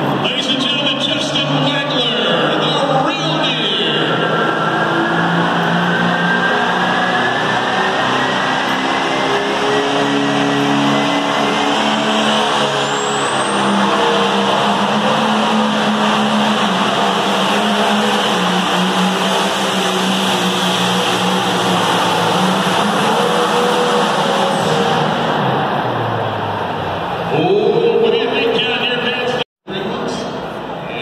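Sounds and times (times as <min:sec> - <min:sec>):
tractor engine under full load: 0:00.0 - 0:27.6.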